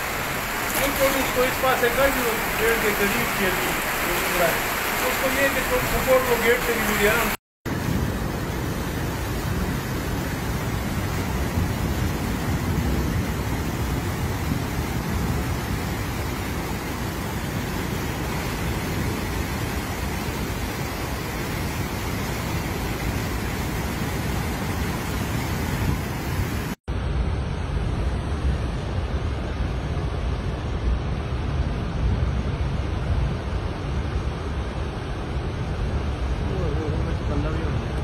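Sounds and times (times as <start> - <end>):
floodwater rushing: 0.0 - 7.4, 8.4 - 26.8.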